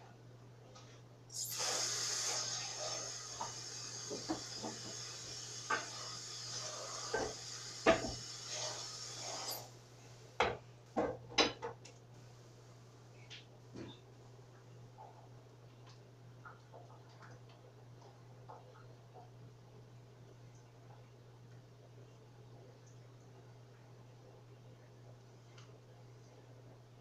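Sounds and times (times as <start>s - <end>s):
low steady hum: 0.0s - 1.4s, 9.6s - 27.0s
steady hiss: 1.3s - 10.4s.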